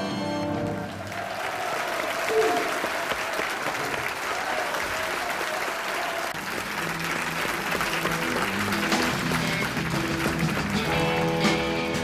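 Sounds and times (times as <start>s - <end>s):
audience applauding: 0.5s - 12.0s
band holding low notes: 6.4s - 12.0s.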